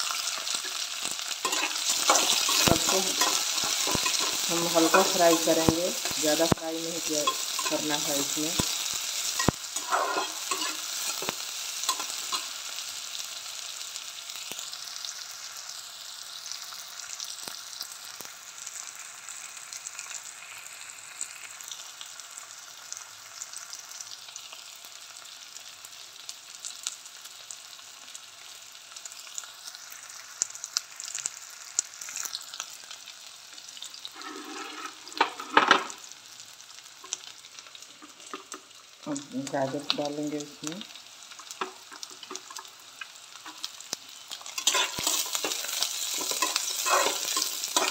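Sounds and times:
onions sizzling in hot fat: 0:00.0 - 0:47.9
spatula scraping and tapping pan: 0:01.4 - 0:06.6, 0:09.4 - 0:12.5, 0:34.2 - 0:35.9, 0:44.6 - 0:47.9.

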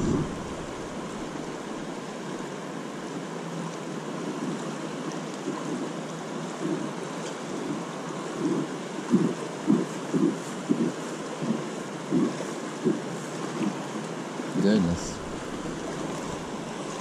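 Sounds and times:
wind gusts on microphone: 0:00.0 - 0:02.0
creek rushing over rocks: 0:00.0 - 0:03.4, 0:12.5 - 0:17.0.

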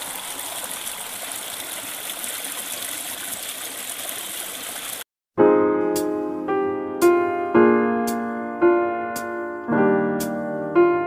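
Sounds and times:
stream running over rocks: 0:00.0 - 0:05.1
piano music: 0:05.4 - 0:11.0.

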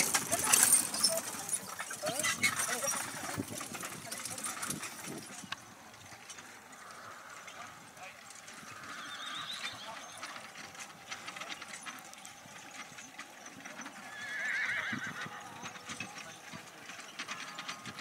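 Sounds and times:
carriage rattling: 0:00.0 - 0:18.0
horse whinnying: 0:08.5 - 0:10.4, 0:13.9 - 0:15.9.

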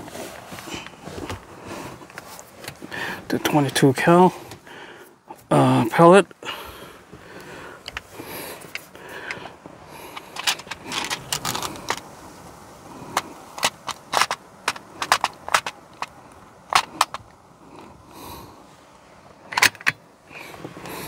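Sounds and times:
air rifle clicks and clacks: 0:10.1 - 0:12.1, 0:13.1 - 0:17.4, 0:19.5 - 0:20.0.

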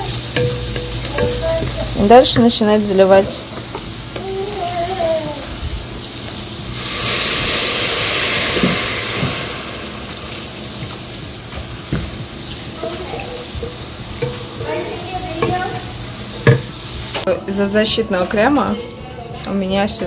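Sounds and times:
spatula knocking pan: 0:00.0 - 0:04.4, 0:11.6 - 0:16.8
liquid sizzling in hot pan: 0:00.0 - 0:17.3.

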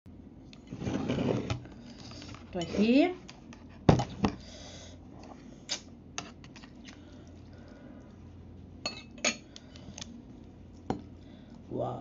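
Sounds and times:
metal fork clinking on bowl: 0:08.9 - 0:09.4.

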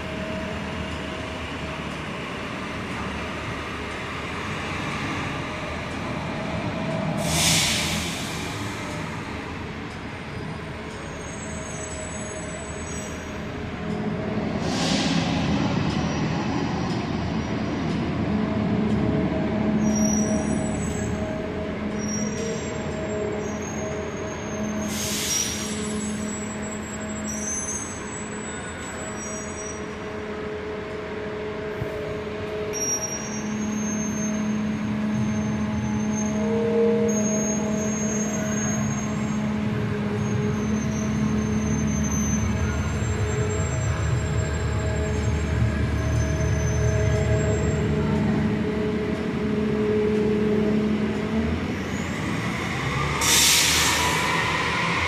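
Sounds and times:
bus engine hum: 0:00.0 - 0:55.0
air brake hisses: 0:07.2 - 0:08.7, 0:14.6 - 0:15.6, 0:24.8 - 0:26.3, 0:53.2 - 0:54.2
short high squeals: 0:22.0 - 0:29.9, 0:32.7 - 0:36.4, 0:37.1 - 0:39.4, 0:40.2 - 0:45.4.

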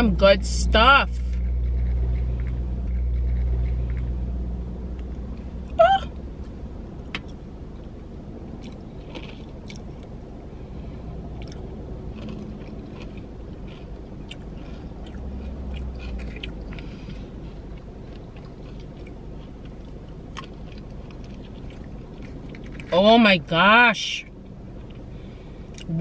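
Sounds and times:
low hum inside car: 0:00.0 - 0:26.0
chewing: 0:01.2 - 0:04.2, 0:08.6 - 0:10.1, 0:11.3 - 0:23.0.

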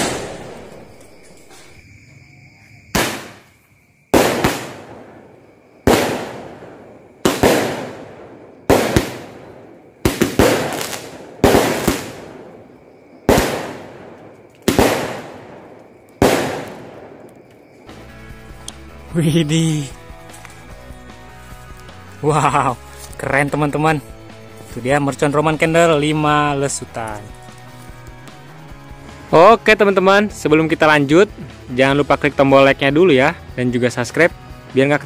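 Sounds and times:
firework bangs with echo: 0:00.0 - 0:01.7, 0:02.9 - 0:03.5, 0:04.1 - 0:17.3.

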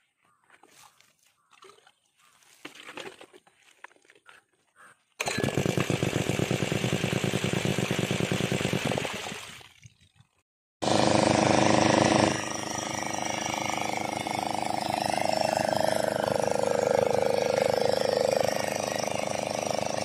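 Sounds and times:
small petrol engine running: 0:05.2 - 0:09.5, 0:10.8 - 0:20.0.

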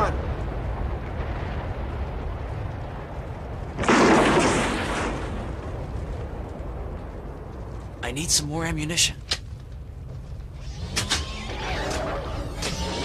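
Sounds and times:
loud explosion: 0:00.0 - 0:07.3
low rumble: 0:00.0 - 0:13.0.

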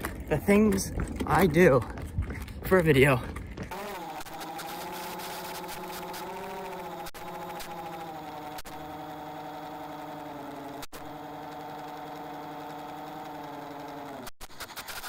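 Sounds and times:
model airplane motor and propeller: 0:03.7 - 0:15.0.

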